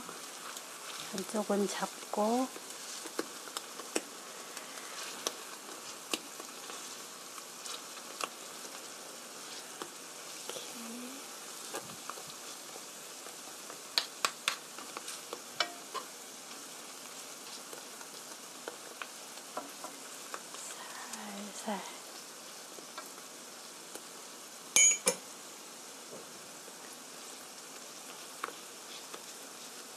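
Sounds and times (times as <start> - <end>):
batter frying in oil: 0.0 - 29.9
spoon scraping a pan: 14.9 - 16.2.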